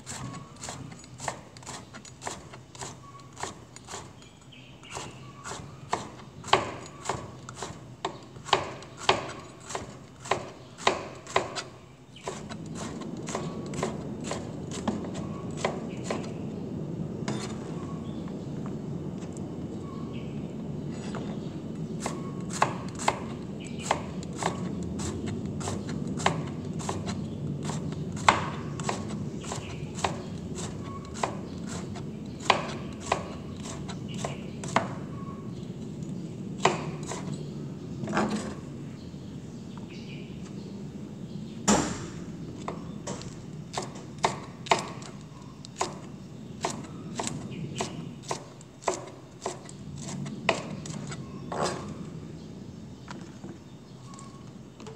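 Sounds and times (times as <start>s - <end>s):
low background noise: 0.0s - 54.9s
knife chopping on plastic board: 4.9s - 16.3s, 22.0s - 35.0s, 41.7s - 45.2s, 45.8s - 51.0s.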